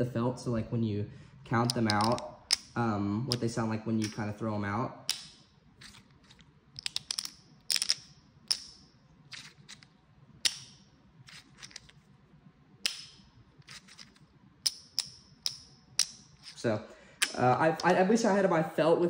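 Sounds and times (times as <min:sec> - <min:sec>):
clay poker chips clacking: 0:01.6 - 0:04.3, 0:05.1 - 0:12.0, 0:12.8 - 0:16.6.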